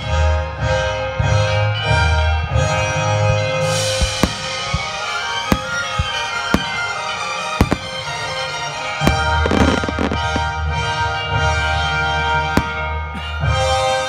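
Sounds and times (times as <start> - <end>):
music with long held notes: 0.0 - 14.0
fireworks bangs: 3.6 - 11.2, 12.4 - 14.0
fireworks crackling: 3.6 - 11.8, 12.5 - 14.0.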